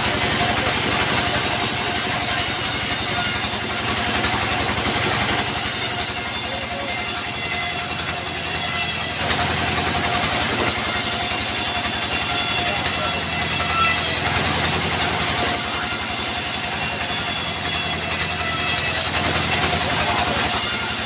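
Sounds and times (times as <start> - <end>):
diesel engine chugging: 0.0 - 21.0
band saw blade hissing in wood: 5.4 - 9.2.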